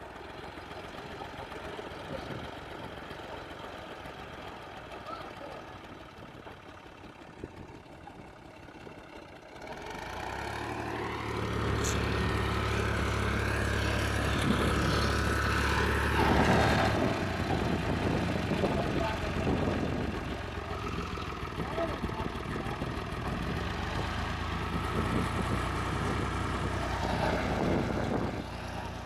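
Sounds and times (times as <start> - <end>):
tractor diesel engine revving: 9.4 - 29.0.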